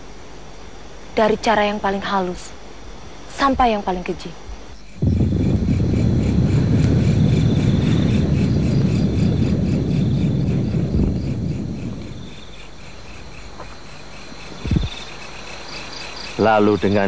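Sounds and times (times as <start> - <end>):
crickets chirping: 0.0 - 17.0
loud low rumble: 5.0 - 12.4.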